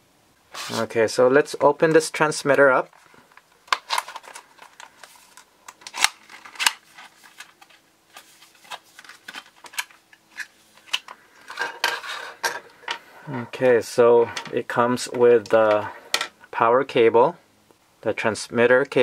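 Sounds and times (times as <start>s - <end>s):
plastic packaging crackling: 2.8s - 12.2s.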